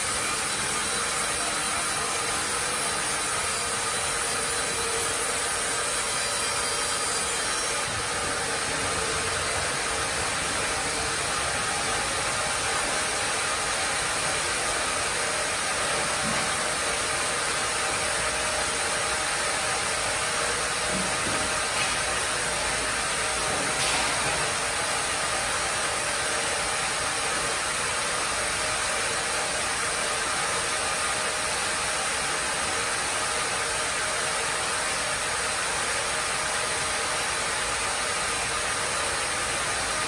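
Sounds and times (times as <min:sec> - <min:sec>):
sawmill blade cutting log: 0:00.0 - 0:25.4.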